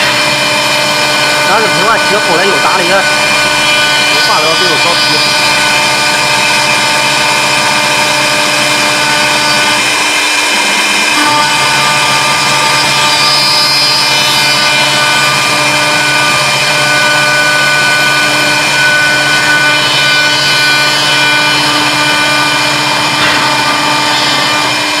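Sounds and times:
lathe motors whining: 0.0 - 25.0
motor changing speed: 0.0 - 25.0
machining rush: 0.8 - 5.8.

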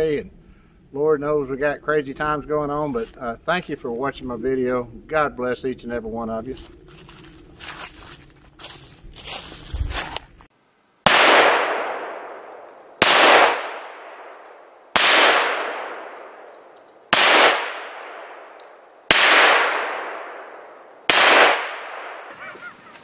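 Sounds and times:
revolver shots echoing: 11.1 - 22.4.

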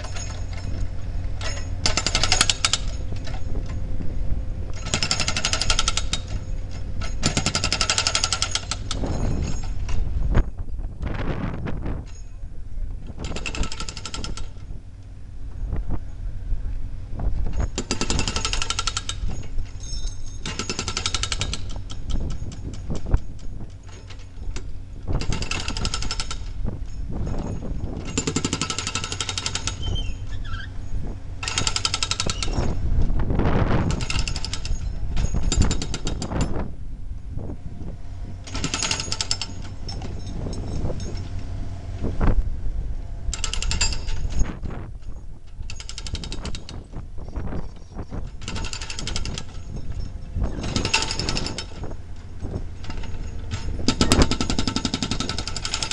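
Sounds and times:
hydraulic breaker hammering concrete: 0.0 - 3.4, 4.7 - 9.8, 17.6 - 19.4, 20.4 - 23.2, 27.2 - 29.9, 38.4 - 40.7, 48.4 - 55.9
excavator engines running: 0.0 - 55.9.

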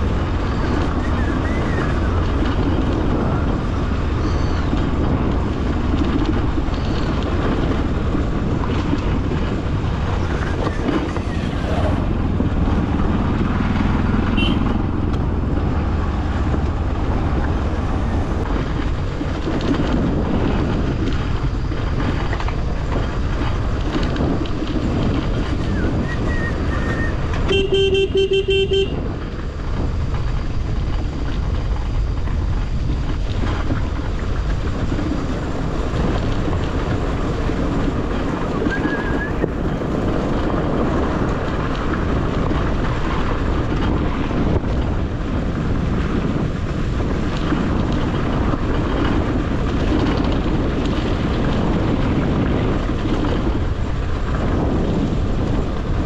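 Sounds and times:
motorcycle engine running: 0.0 - 56.0
road and wind noise: 0.0 - 56.0
horn tone: 14.3 - 14.9, 27.4 - 29.0.

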